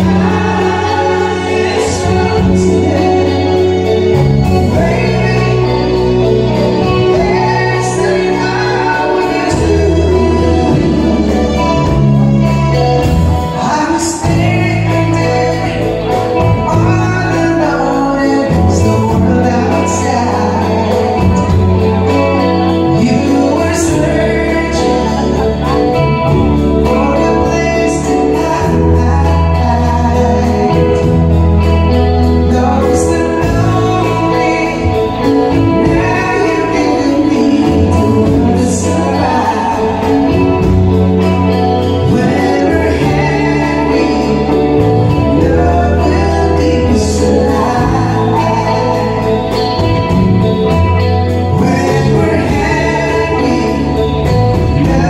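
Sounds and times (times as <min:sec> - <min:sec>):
bass line: 0:00.0 - 0:55.0
drum kit: 0:00.0 - 0:55.0
electric guitar: 0:00.0 - 0:55.0
person singing: 0:00.0 - 0:55.0.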